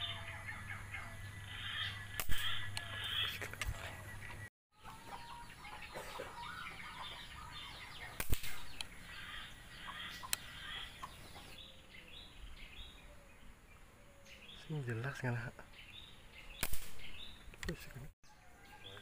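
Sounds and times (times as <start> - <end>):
birds chirping and twittering: 0.0 - 19.0
sharp crack: 2.1 - 3.7, 8.1 - 9.0, 16.6 - 17.8.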